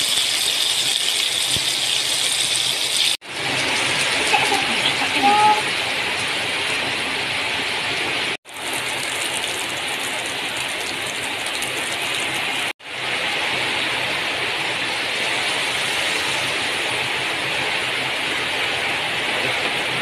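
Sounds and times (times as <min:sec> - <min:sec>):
chicken sizzling in hot oil: 0:00.0 - 0:06.8, 0:14.8 - 0:17.8.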